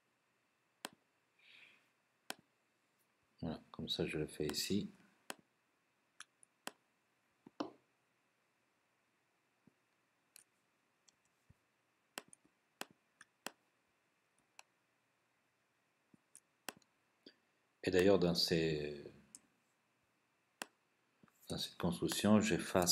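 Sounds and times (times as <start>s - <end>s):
computer mouse clicks: 0.8s - 1.0s, 12.2s - 13.6s, 16.3s - 16.9s.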